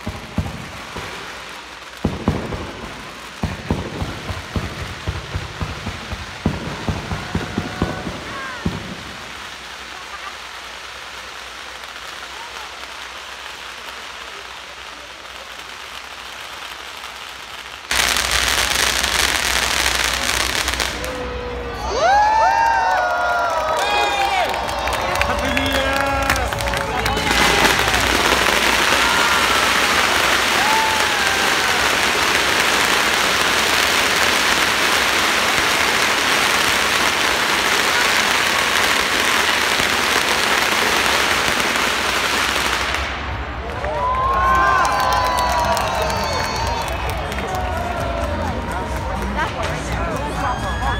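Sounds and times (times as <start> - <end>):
firecrackers crackling: 0.0 - 50.9.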